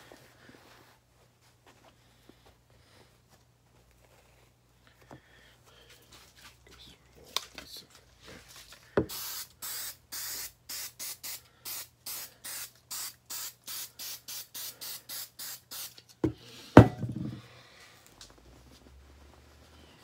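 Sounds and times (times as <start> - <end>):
spray paint can hissing: 9.1 - 16.1
knocks: 16.2 - 17.4.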